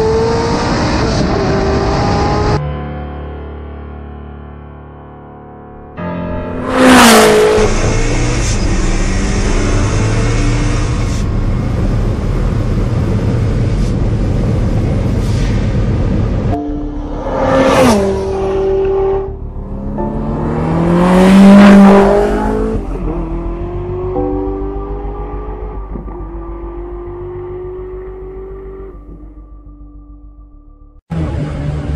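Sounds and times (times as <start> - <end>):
engine and wind drone: 0.0 - 2.6, 6.6 - 29.4
car passing at high speed: 6.6 - 28.9.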